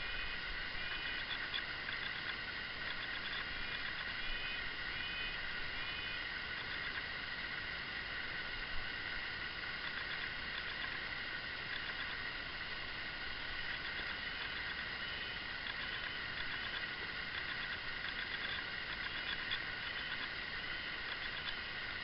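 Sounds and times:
high-pitched chorus of distant calls: 0.0s - 7.0s, 13.3s - 22.0s.

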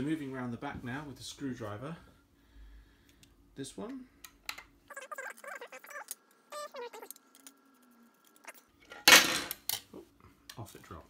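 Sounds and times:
screws squeaking and scraping: 4.9s - 8.9s.

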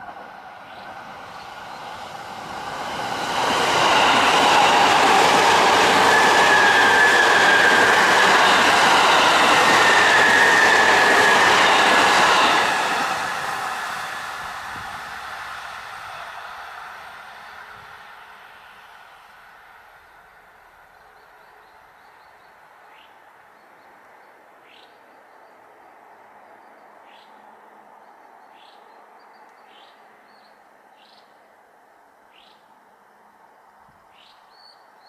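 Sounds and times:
train wheels rumbling on rails: 0.0s - 20.1s.

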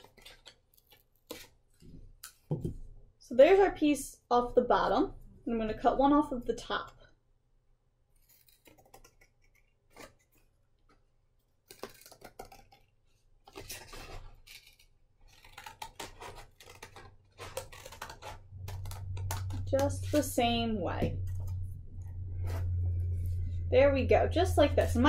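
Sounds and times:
scissors snipping paper: 0.0s - 1.6s, 8.1s - 11.0s, 11.6s - 20.4s.

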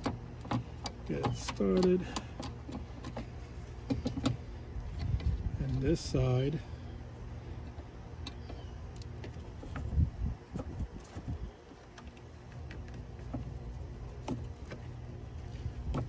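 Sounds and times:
small metallic clicks: 0.0s - 5.8s
steady low hum: 0.0s - 16.0s.

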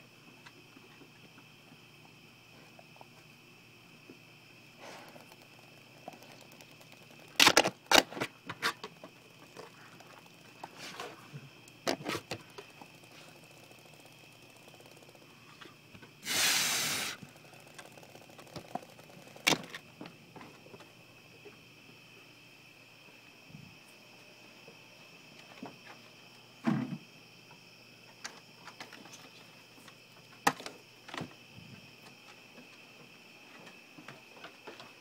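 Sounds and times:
dog sniffing loudly: 16.2s - 17.2s.

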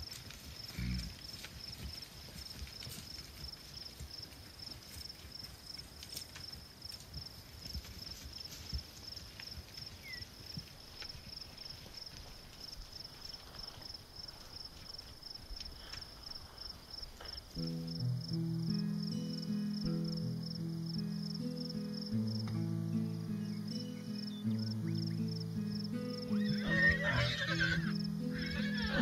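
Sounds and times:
soft hoof steps: 0.0s - 18.2s
insect chirping rapid pulses: 0.0s - 29.0s.

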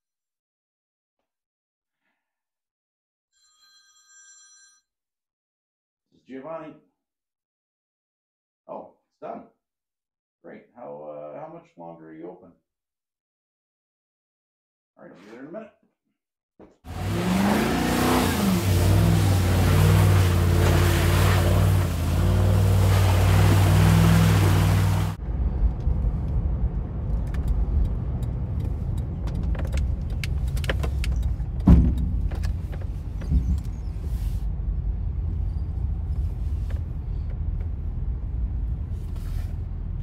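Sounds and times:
car engine under load: 16.9s - 40.0s
road rumble inside car: 16.9s - 40.0s
thump: 31.6s - 32.5s.

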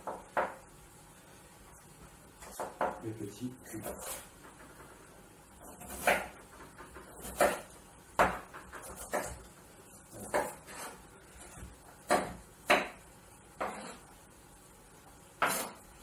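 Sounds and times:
knife striking cutting board: 15.4s - 15.8s.

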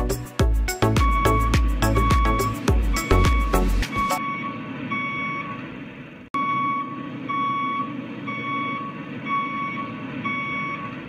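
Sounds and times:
low motor hum: 0.0s - 5.1s
electronic beeper short beeps: 1.0s - 5.6s.

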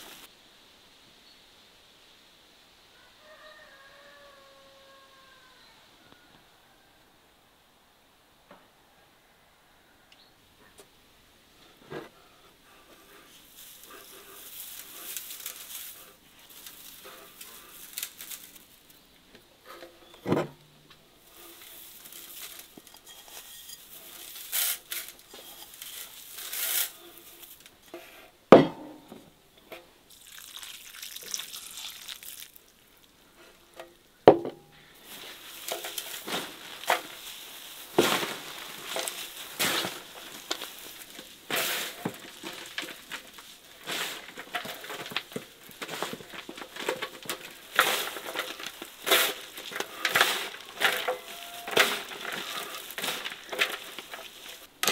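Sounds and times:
hands rustling shredded vegetables: 12.7s - 19.0s, 21.2s - 27.7s, 34.9s - 54.8s.

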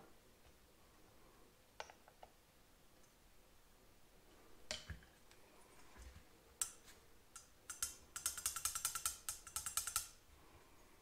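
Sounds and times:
sharp metallic clicks and taps: 6.6s - 10.2s.

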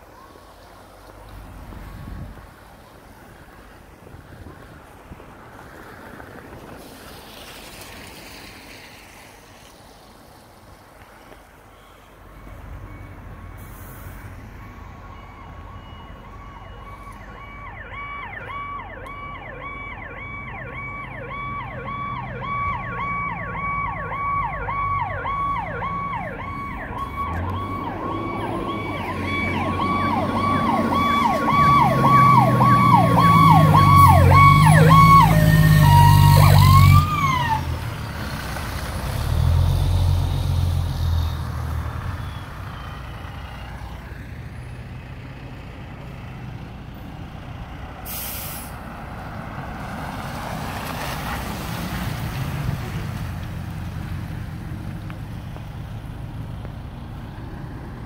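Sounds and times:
faint wind: 0.0s - 58.0s
fire engine rumbling: 0.0s - 58.0s
street noise: 0.0s - 58.0s
fire engine siren yelping: 12.3s - 38.2s.

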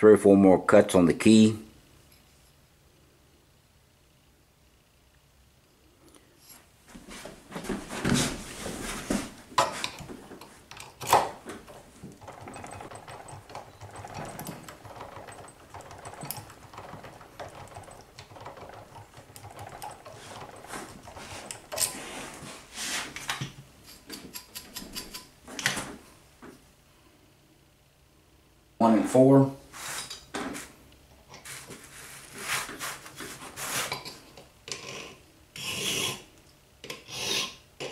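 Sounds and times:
knocks and handling clatter: 7.6s - 22.5s
hand file rasping on metal: 35.6s - 36.2s.

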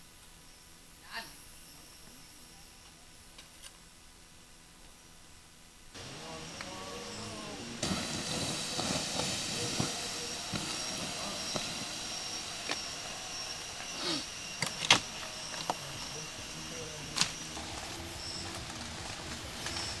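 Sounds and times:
water hissing on embers: 6.0s - 20.0s.

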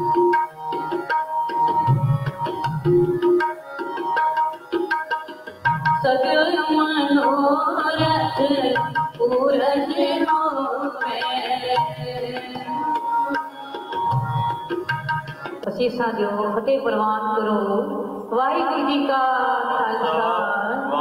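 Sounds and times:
harmonium held note: 0.0s - 16.2s
tabla playing: 0.0s - 17.5s
woman singing a hymn: 6.0s - 12.4s.

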